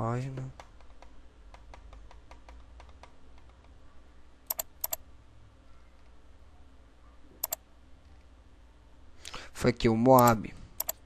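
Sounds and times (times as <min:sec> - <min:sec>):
computer mouse clicks: 0:00.6 - 0:03.7, 0:04.5 - 0:05.0, 0:07.4 - 0:07.6, 0:10.2 - 0:11.0.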